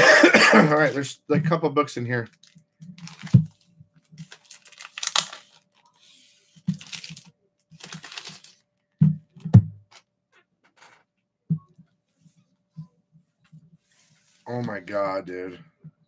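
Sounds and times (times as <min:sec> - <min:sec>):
plastic bags rustling and crinkling: 0:02.2 - 0:08.6.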